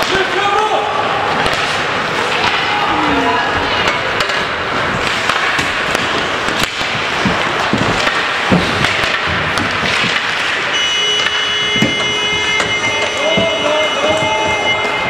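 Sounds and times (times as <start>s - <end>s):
hockey sticks and puck clacking: 0.0s - 15.0s
skates scraping ice: 1.2s - 15.0s
steady high tone: 10.7s - 15.0s.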